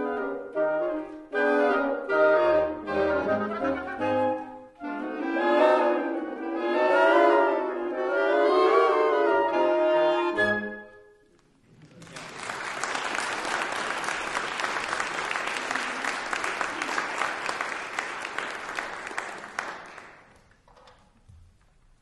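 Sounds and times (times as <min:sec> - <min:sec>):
woodwind quintet chord: 0:00.0 - 0:11.1
audience applauding: 0:11.6 - 0:20.6.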